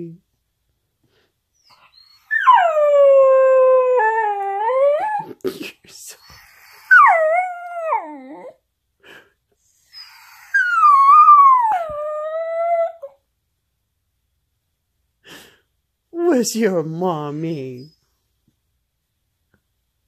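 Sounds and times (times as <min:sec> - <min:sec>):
dog howling: 0:02.0 - 0:05.2, 0:06.8 - 0:08.6, 0:10.2 - 0:13.1.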